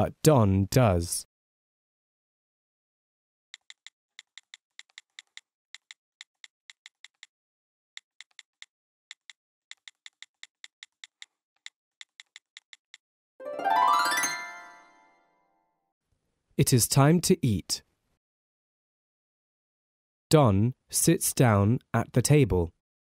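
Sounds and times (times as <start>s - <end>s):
keyboard typing clicks: 3.6s - 7.3s, 8.0s - 13.0s.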